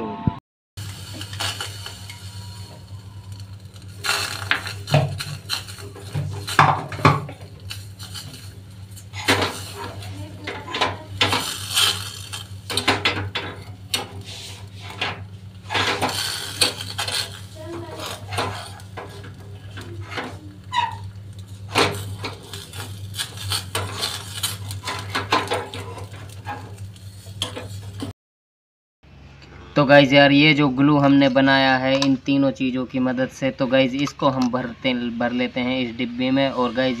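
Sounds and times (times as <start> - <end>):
steady low hum: 0.8 - 28.1
metal spoon scraping steel pot: 1.1 - 28.1.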